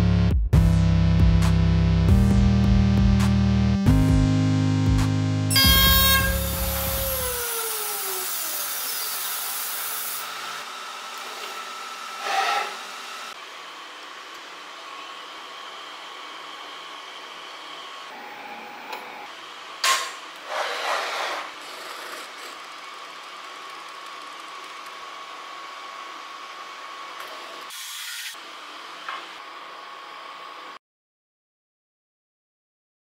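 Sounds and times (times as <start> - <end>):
machine hum with high whine: 5.0 - 8.6, 9.4 - 20.5.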